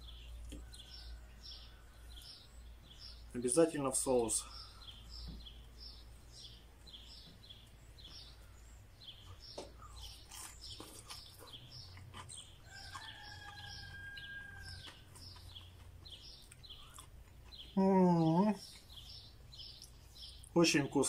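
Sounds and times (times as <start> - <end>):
small birds chirping: 0.0 - 21.0
distant rooster crowing: 0.5 - 2.6, 12.6 - 15.3.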